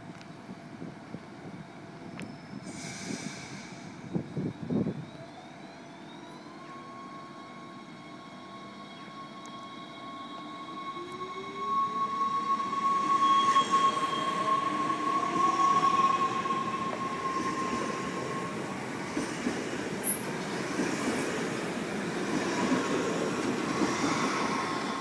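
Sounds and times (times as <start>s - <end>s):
traction motors whining: 4.9s - 25.0s
steady high tone: 6.1s - 20.4s.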